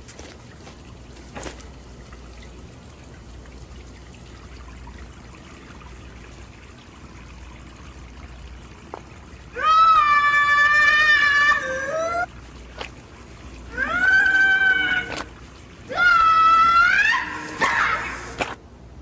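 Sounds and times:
tap water running into sink: 0:00.8 - 0:09.5.

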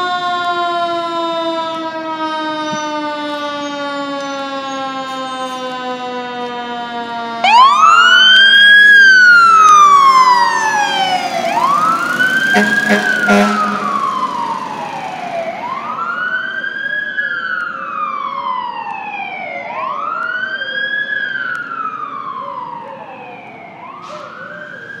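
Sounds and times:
fire engine siren wailing: 0:00.0 - 0:25.0
short siren blasts: 0:00.7 - 0:16.7.

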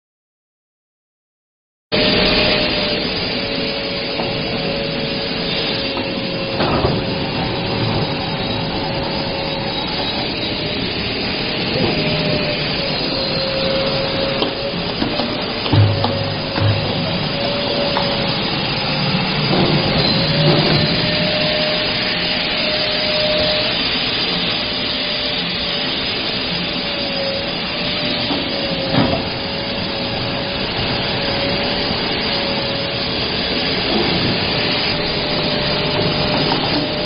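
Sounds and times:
machine whine: 0:01.9 - 0:37.0
machine rushing and rubbing: 0:02.0 - 0:23.8
knock: 0:15.8 - 0:17.0.

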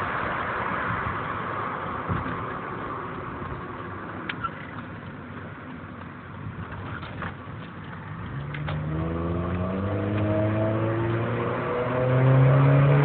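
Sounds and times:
road and wind noise: 0:00.0 - 0:13.0
car engine accelerating: 0:08.1 - 0:13.0.

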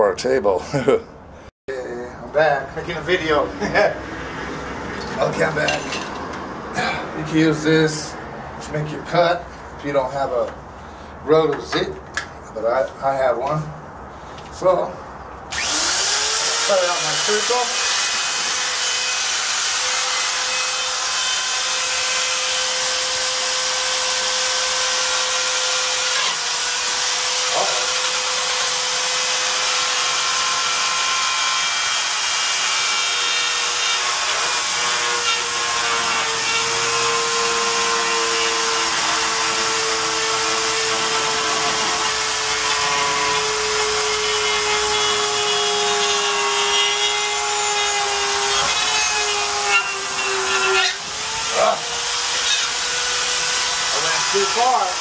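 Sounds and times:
rotary tool motor whine: 0:15.5 - 0:16.6.

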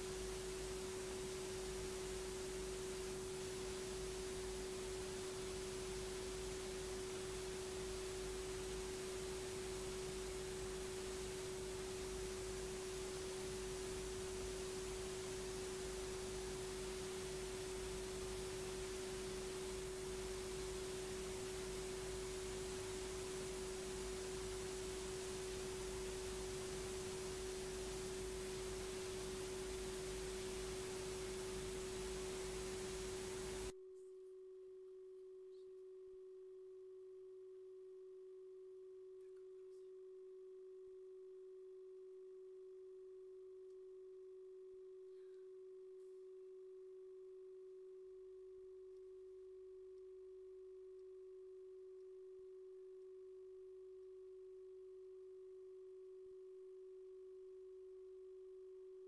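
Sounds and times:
steady tone: 0:00.0 - 0:33.8
constant hiss: 0:00.0 - 0:34.2, 0:39.2 - 0:40.0.

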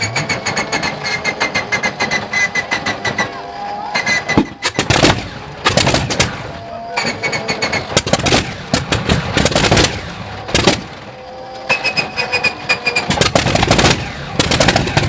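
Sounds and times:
radial engine firing unevenly: 0:00.0 - 0:15.0
steady high whine: 0:00.0 - 0:15.0.

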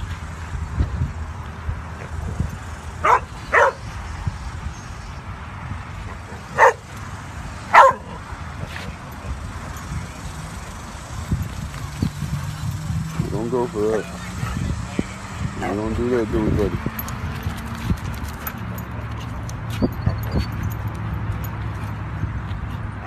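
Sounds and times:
dog barking: 0:03.0 - 0:03.8, 0:06.5 - 0:06.8, 0:07.7 - 0:08.2.

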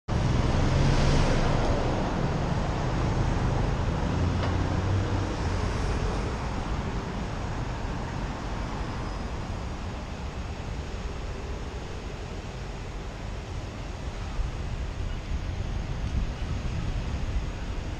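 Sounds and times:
bus engine: 0:00.1 - 0:17.9
road noise rumble: 0:00.1 - 0:17.9.

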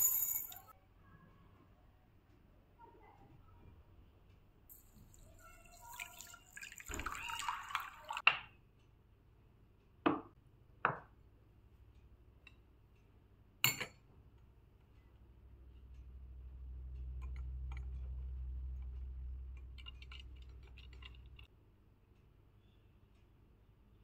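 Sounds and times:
glass clink: 0:00.0 - 0:00.7, 0:13.6 - 0:14.0
water pouring into glass bowl: 0:04.7 - 0:08.2.

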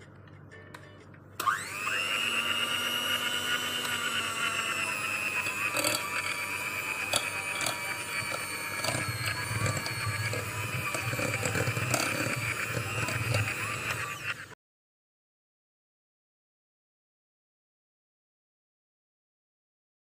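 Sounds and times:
electric hand mixer whine: 0:01.4 - 0:14.6.

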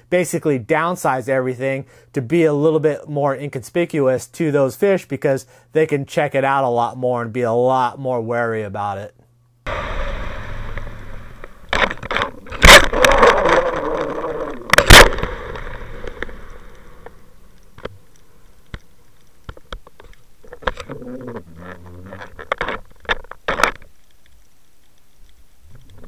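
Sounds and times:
muffled hum: 0:09.7 - 0:22.8
clicks: 0:10.6 - 0:26.0.

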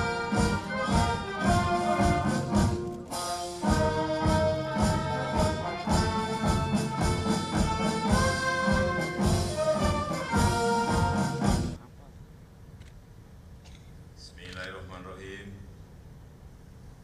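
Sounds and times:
brass band playing a march: 0:00.0 - 0:11.8
drum beat: 0:00.0 - 0:11.8.

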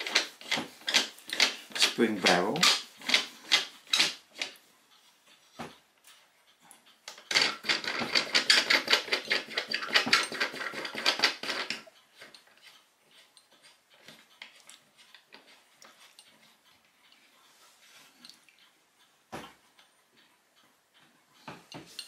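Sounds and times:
rattle of small clicks: 0:06.8 - 0:16.5.

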